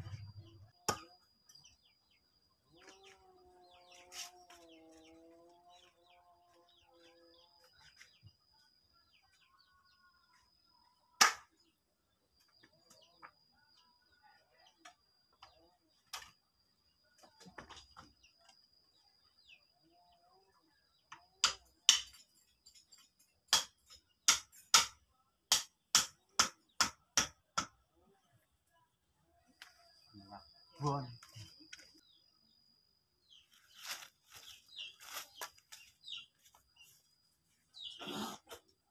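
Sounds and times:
sharp knocks by hand: 11.2 - 11.5, 21.4 - 22.2, 23.5 - 27.8
faint high steady tone: 28.0 - 33.6.

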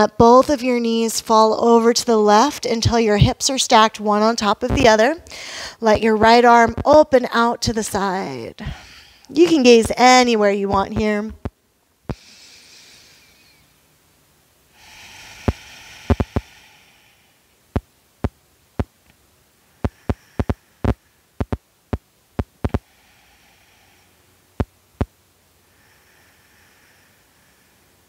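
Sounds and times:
person breathing: 5.2 - 5.8, 8.6 - 9.3, 12.1 - 13.8, 14.7 - 17.6, 19.6 - 21.4, 22.7 - 24.4, 25.6 - 28.0
sharp irregular clicks: 16.1 - 16.5, 19.8 - 22.8.

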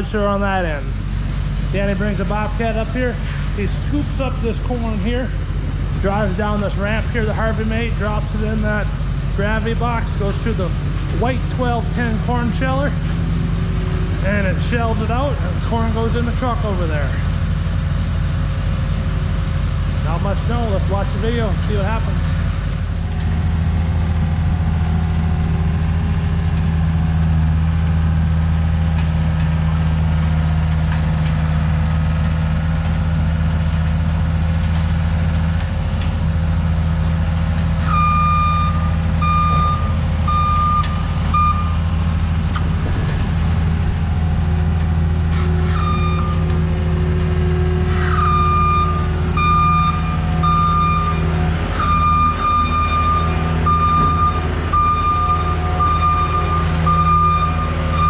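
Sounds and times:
diesel machinery drone: 0.0 - 58.0
back-up alarm beeping: 37.8 - 42.0, 45.3 - 46.6, 48.1 - 58.0.

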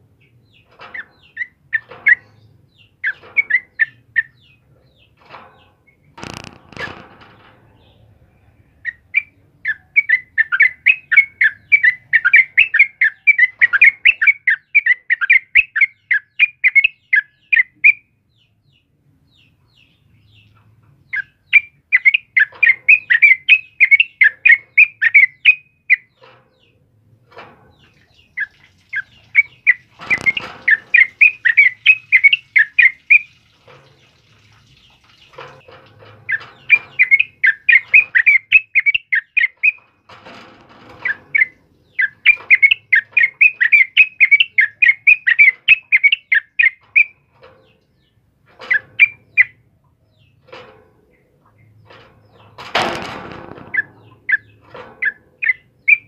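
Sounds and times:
bird chirping song: 0.0 - 56.0
rustling: 27.3 - 38.4.

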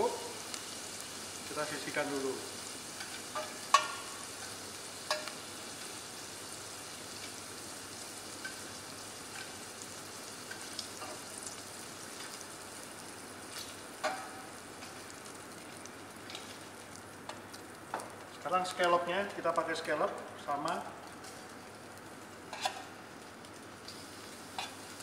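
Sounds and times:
prawns sizzling in a pan: 0.0 - 25.0
metal tongs clinking on pan: 3.0 - 4.5, 5.1 - 5.4, 14.0 - 14.4.

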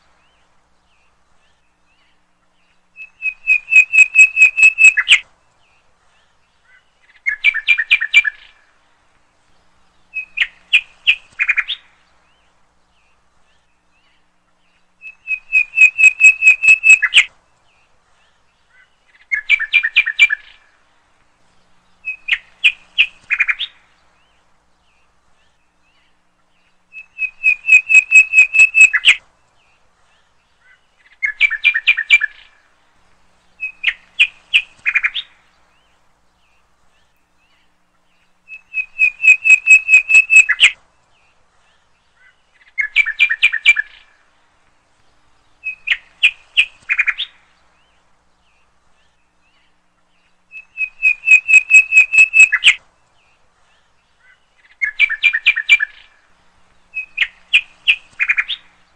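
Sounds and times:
bird chirping trills: 0.2 - 8.8, 9.6 - 32.7, 33.4 - 44.3, 45.0 - 58.9.

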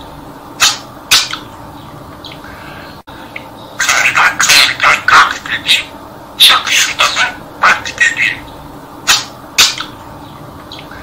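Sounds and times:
budgerigar chattering: 0.6 - 1.5, 3.4 - 10.0.

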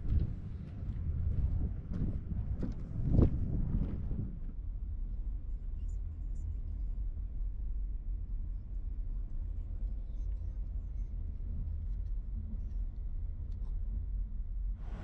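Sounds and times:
footsteps on wooden boardwalk: 0.2 - 4.1.

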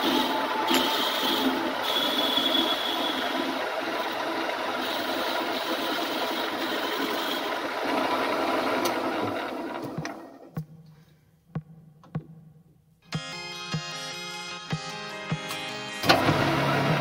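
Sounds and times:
high whine: 0.0 - 7.7
milling machine cutting metal: 0.0 - 10.4.

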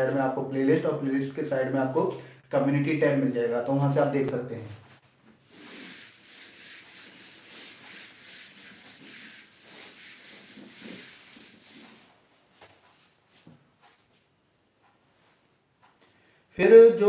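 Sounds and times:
eraser rubbing on a whiteboard: 4.9 - 14.2.

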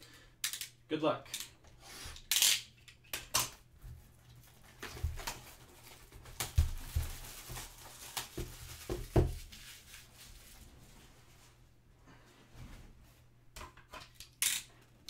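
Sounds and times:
plastic shrink wrap crinkling and tearing: 4.3 - 10.9
knocks of cardboard box handled: 8.4 - 9.4.

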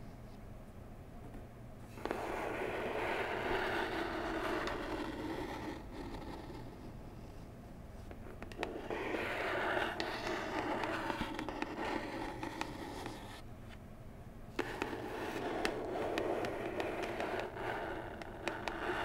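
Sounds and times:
fingernails scratching cardboard: 2.0 - 6.8, 8.3 - 13.4, 14.6 - 19.0.

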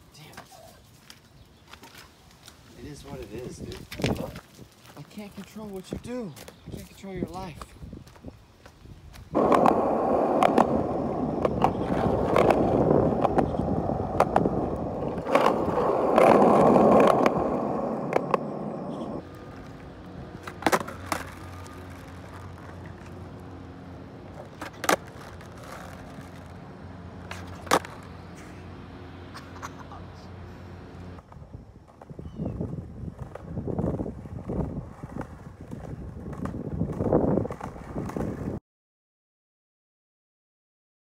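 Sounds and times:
skateboard wheels rolling on asphalt: 0.0 - 38.6
skateboard clicks: 9.4 - 23.6, 24.3 - 26.6, 27.2 - 28.2
skateboard deck clacking on pavement: 9.4 - 26.6, 27.2 - 28.1.

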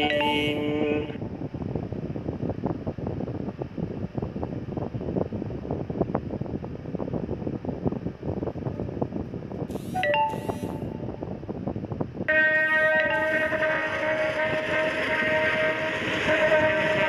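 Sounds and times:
phone notification chime: 0.0 - 0.6, 9.8 - 11.1, 13.0 - 13.6
crackly background rush: 0.0 - 17.0.

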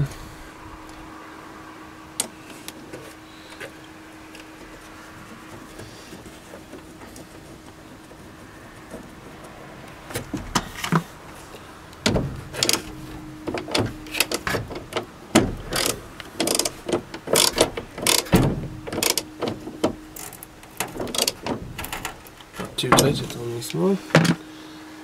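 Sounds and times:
ratchet wrench clicking: 15.7 - 18.3, 19.0 - 19.3, 20.2 - 21.5.

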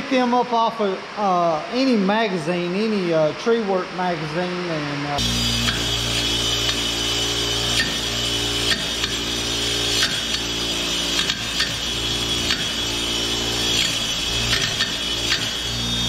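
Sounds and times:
bench grinder motor hum: 5.2 - 16.0
grinding hiss: 5.2 - 16.0
metal tooth scraping grinding wheel: 5.5 - 16.0.

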